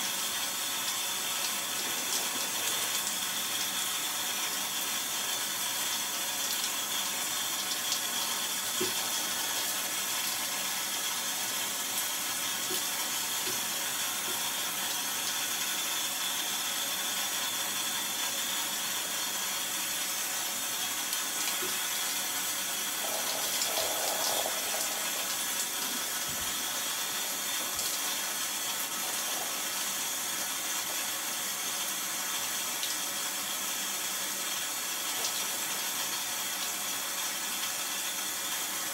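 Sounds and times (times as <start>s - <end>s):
shower head spraying water: 0.0s - 16.2s, 19.2s - 33.0s.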